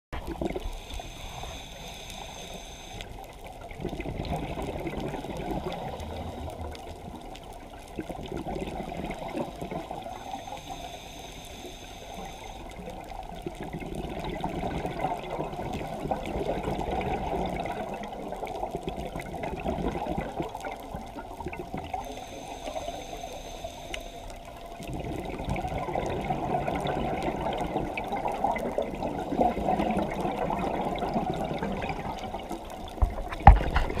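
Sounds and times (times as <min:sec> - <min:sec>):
regulator hissing inhalation: 0:00.6 - 0:03.2, 0:10.2 - 0:12.8, 0:22.0 - 0:24.5.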